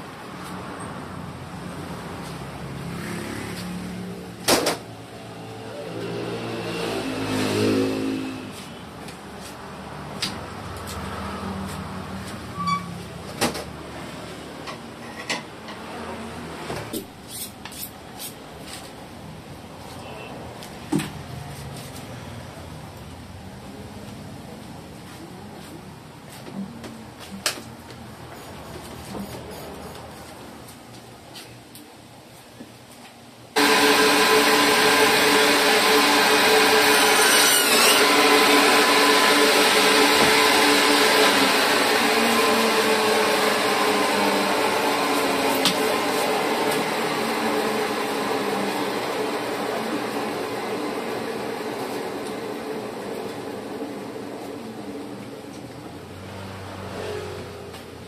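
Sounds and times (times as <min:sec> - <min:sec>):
electric band saw whirring: 0:33.6 - 0:55.2.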